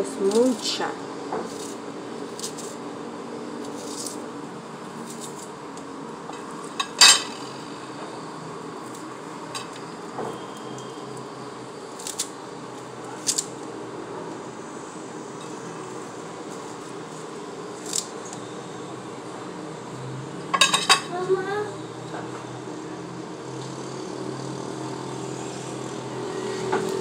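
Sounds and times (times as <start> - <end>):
low background hum: 0.0 - 27.0
utensils clinking against dishes: 6.4 - 7.6, 20.5 - 21.1.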